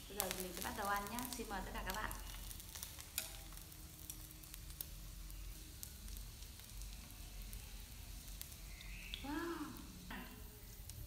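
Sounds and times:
sausages sizzling on griddle: 0.0 - 11.0.

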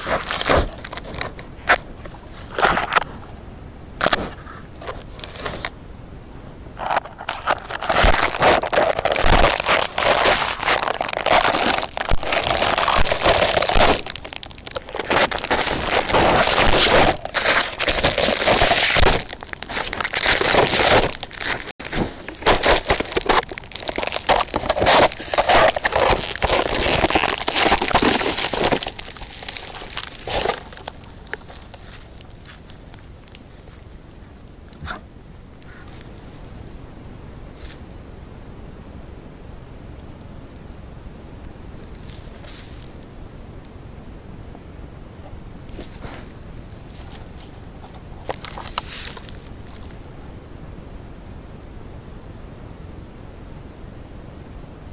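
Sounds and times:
fur scraping on camera housing: 6.8 - 34.0.

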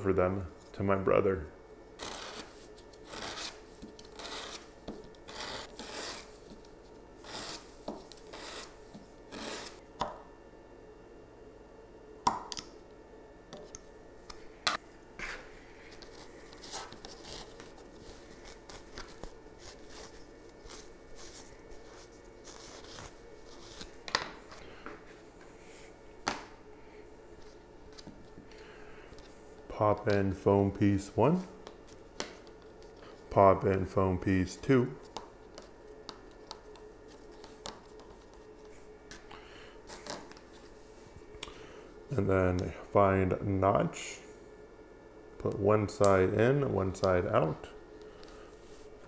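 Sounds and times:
sandpaper rasping on plastic: 2.0 - 4.6.

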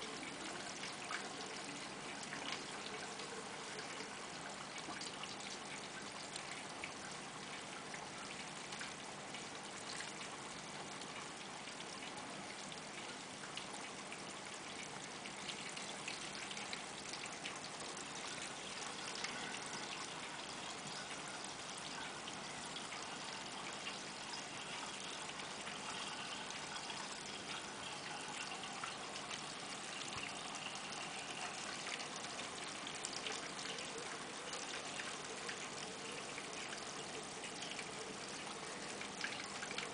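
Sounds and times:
water trickling and splashing: 0.0 - 39.9
bubbles crackling: 16.6 - 39.9.

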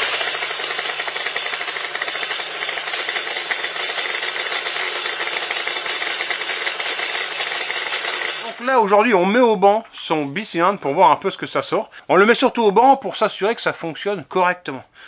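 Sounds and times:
two-stroke engine running: 0.0 - 8.7.

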